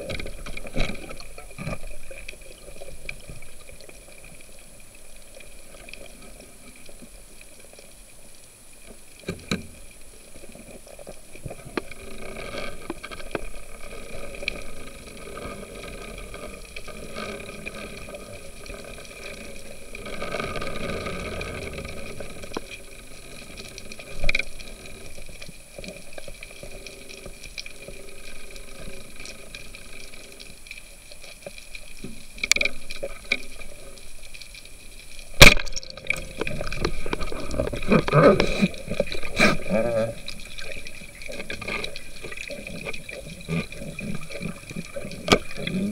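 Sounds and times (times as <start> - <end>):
underwater hum: 0.0 - 45.9
water wash: 35.3 - 45.9.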